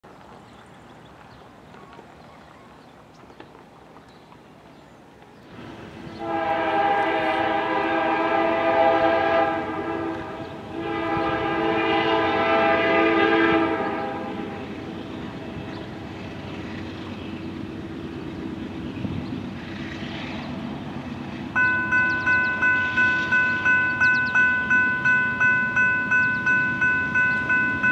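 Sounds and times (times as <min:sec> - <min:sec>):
train rumbling: 0:00.0 - 0:27.9
locomotive air horn blasts: 0:06.2 - 0:15.7.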